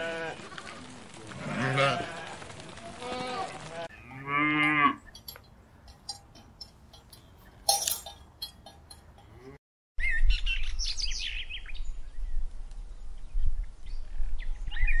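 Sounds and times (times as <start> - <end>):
cowbells clanking: 4.6 - 9.6.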